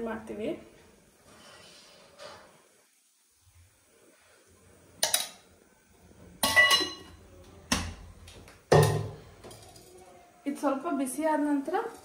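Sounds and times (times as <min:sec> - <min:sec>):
spoon knocking on steel vessels: 0:06.4 - 0:07.2.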